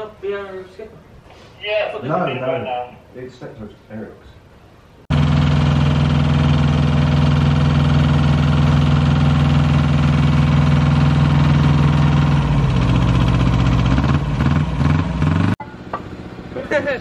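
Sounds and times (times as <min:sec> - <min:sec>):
small locomotive engine idling: 0:05.1 - 0:17.0.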